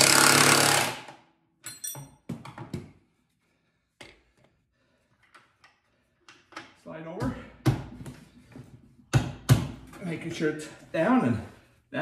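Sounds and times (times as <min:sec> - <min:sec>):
cordless impact driver: 0:00.0 - 0:01.2
tools knocking and clinking: 0:01.6 - 0:02.9.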